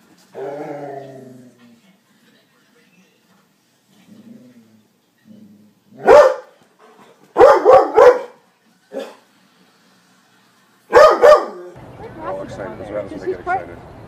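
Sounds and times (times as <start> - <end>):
dog barking: 6.0 - 6.6, 7.3 - 9.2, 10.9 - 11.7.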